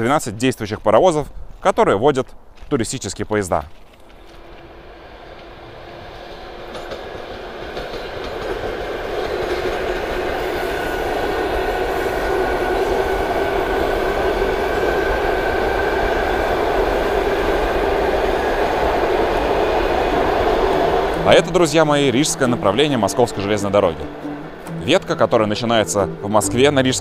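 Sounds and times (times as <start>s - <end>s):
electric train rumbling past: 4.0s - 27.0s
steady whine: 10.0s - 27.0s.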